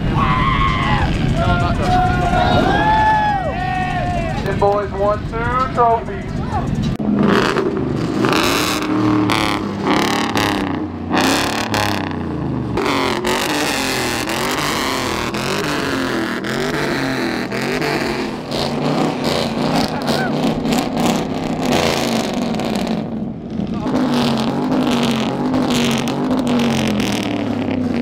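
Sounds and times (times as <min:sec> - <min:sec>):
pickup truck engines running: 0:00.0 - 0:28.0
people talking: 0:01.0 - 0:06.8, 0:19.8 - 0:20.4.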